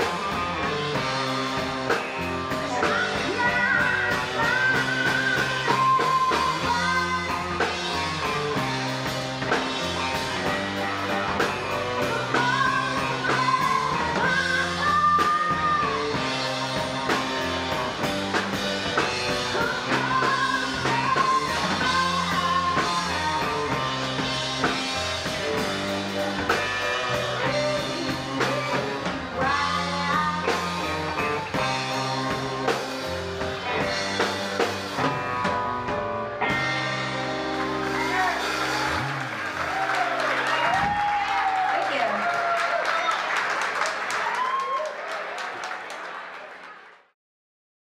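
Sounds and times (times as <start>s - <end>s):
bass line: 0.0s - 41.6s
drum kit beat: 0.0s - 42.0s
rock band playing live: 0.0s - 44.6s
woman singing: 2.5s - 8.0s, 10.5s - 17.8s, 18.9s - 24.8s, 26.1s - 33.1s.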